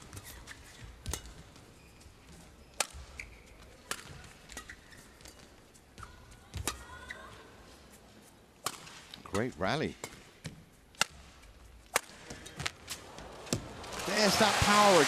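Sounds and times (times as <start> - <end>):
shoes squeaking on floor: 0.0 - 8.4
rackets striking shuttlecock: 8.6 - 9.2, 10.0 - 14.0.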